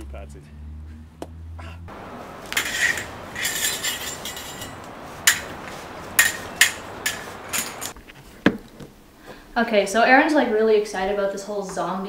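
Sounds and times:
sword blades clinking: 0:01.9 - 0:08.0
swords scraping together: 0:02.0 - 0:08.0.

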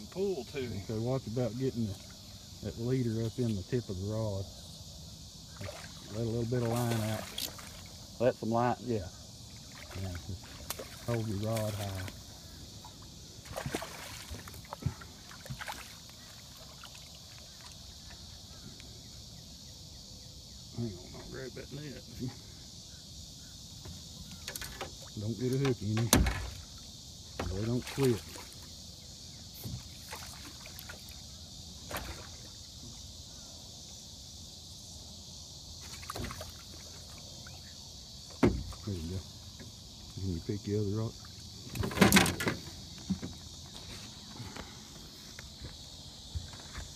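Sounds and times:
steady high hiss: 0:00.0 - 0:46.9
water splashes beside boat: 0:05.5 - 0:08.5, 0:09.5 - 0:18.4, 0:24.2 - 0:28.8, 0:29.5 - 0:33.0, 0:35.8 - 0:40.2, 0:41.0 - 0:46.9
knocks on boat: 0:38.3 - 0:38.8.

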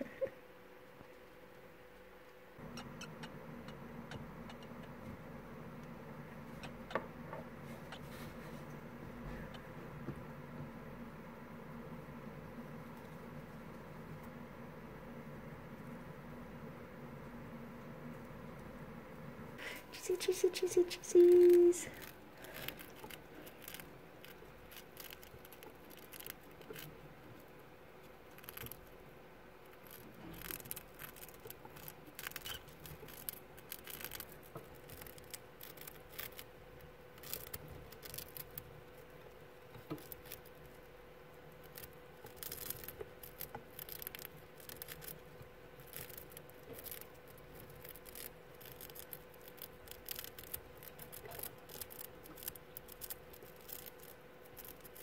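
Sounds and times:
mice nibbling crunchy snack: 0:19.6 - 0:55.0.

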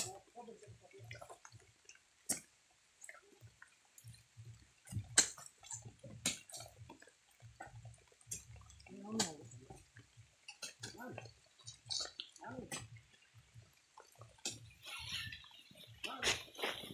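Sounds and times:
soft low thumps: 0:03.4 - 0:16.9.

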